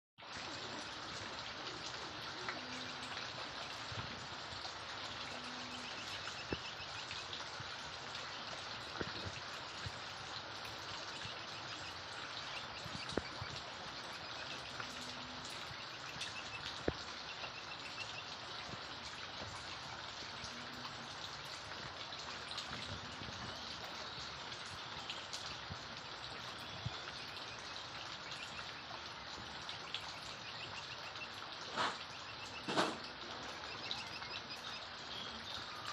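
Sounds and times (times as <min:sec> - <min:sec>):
sharp drips: 0:00.2 - 0:35.9
steady rain: 0:00.2 - 0:35.9.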